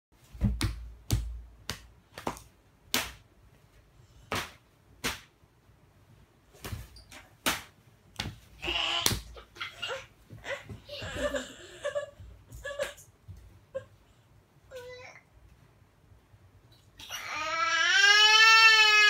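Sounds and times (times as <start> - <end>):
open-handed slaps: 0.4 - 3.3, 4.3 - 5.4, 6.6 - 9.6
child's voice: 14.7 - 15.2.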